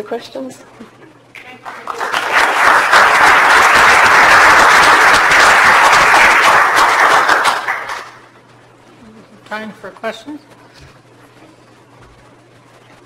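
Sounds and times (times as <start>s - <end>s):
audience applauding: 1.5s - 8.3s.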